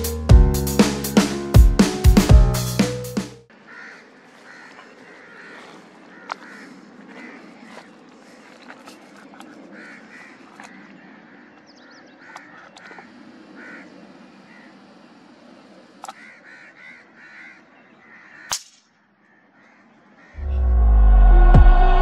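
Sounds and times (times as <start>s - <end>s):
crows cawing: 3.5s - 14.9s, 16.0s - 20.6s.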